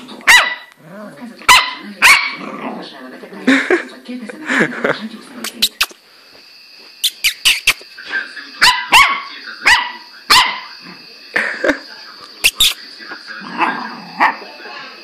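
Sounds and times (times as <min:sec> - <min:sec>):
puppy barking: 0:00.2 - 0:00.7, 0:01.5 - 0:02.5, 0:08.6 - 0:10.7.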